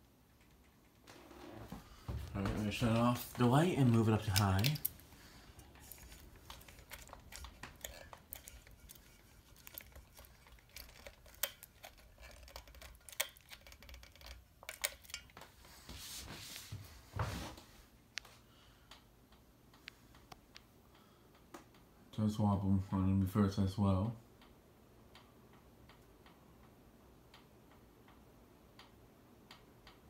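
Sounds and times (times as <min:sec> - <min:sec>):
ceiling fan motor hum: 0:00.0 - 0:30.0
light ticks and clicks: 0:18.1 - 0:21.9, 0:24.4 - 0:30.0.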